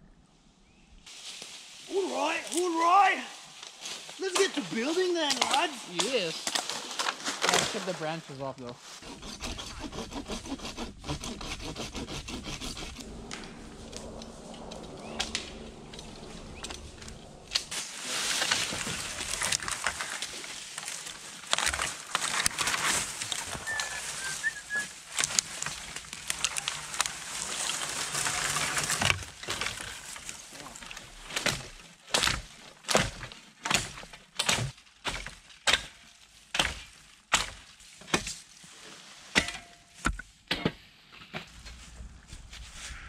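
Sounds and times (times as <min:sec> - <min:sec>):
branches dragged through dry leaves: 0:01.0 - 0:32.0, 0:36.2 - 0:39.4, 0:41.4 - 0:43.0
twigs snapping: 0:03.6 - 0:08.0, 0:13.0 - 0:23.6, 0:25.1 - 0:33.2
bird chirps: 0:14.7 - 0:17.2.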